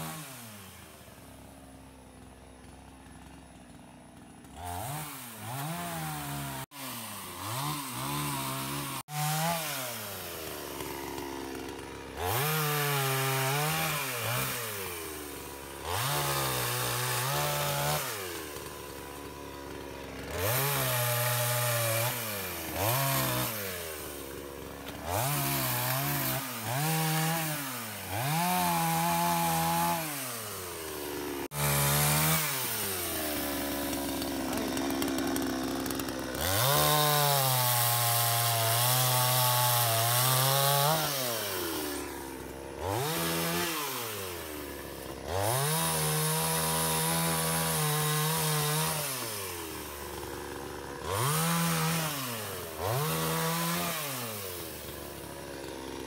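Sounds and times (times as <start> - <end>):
chainsaw revving and idling: 0.0 - 56.0.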